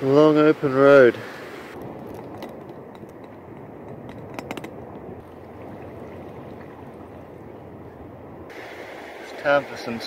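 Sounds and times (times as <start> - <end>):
steady background hiss: 8.5 - 10.0.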